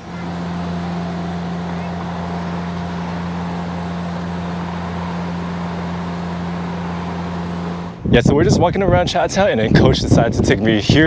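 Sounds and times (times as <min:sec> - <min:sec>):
machine humming with low drone: 0:00.0 - 0:08.1.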